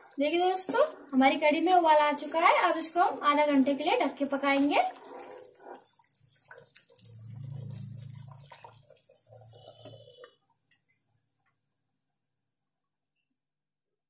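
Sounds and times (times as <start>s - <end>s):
thick liquid bubbling and plopping: 0.0s - 11.6s
low hum: 7.1s - 8.6s.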